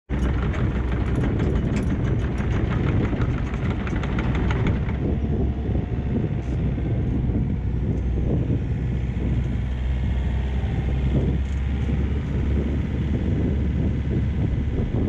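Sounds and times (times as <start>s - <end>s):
rapid light clicking and clattering: 0.1s - 5.1s
excavator diesel engine running: 0.1s - 15.0s.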